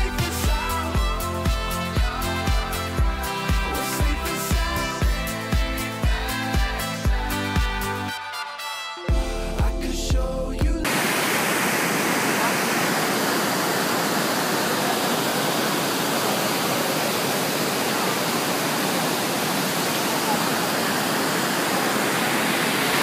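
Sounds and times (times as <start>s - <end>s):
waterfall rushing: 10.9s - 23.0s.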